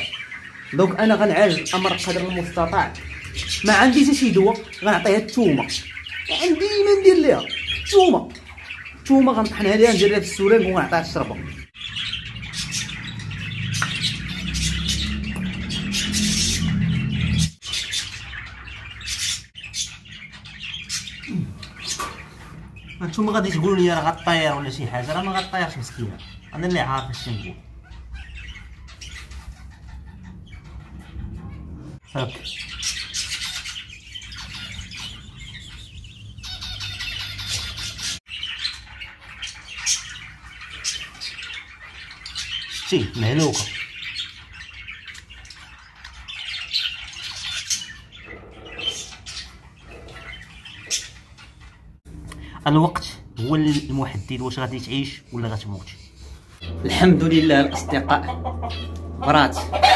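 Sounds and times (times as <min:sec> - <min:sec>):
small birds chirping: 0:00.0 - 0:59.9
low rumble: 0:56.6 - 0:59.9.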